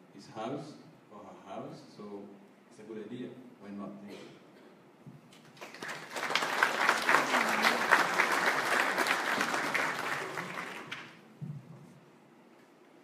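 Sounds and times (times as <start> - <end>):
audience applauding: 5.5 - 11.2.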